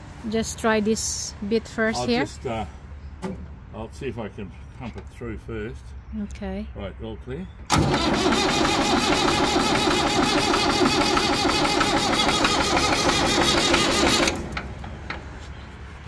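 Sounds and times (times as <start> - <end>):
starter motor cranking engine: 7.7 - 14.8.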